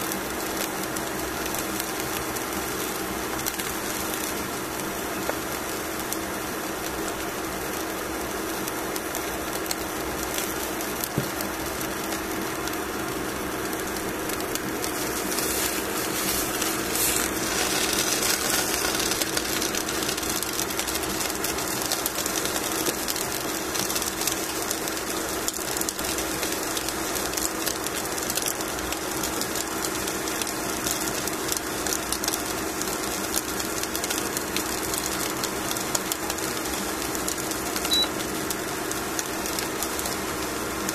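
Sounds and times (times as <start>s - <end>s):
fish sizzling in a pan: 0.0s - 40.9s
steady low hum: 9.2s - 23.3s.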